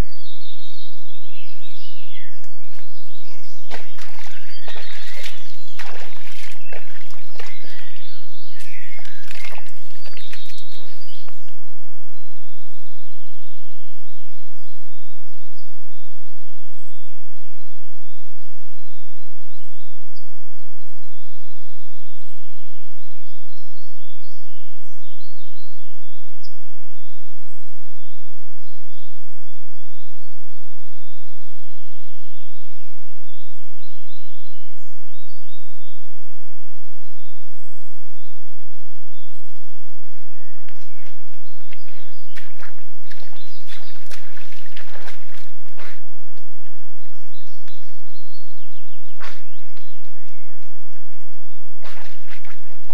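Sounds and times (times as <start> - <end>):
faint birdsong chirps: 0.0 - 36.2, 37.0 - 46.1, 46.7 - 52.9
animal moving clicks and rustles: 40.6 - 46.0.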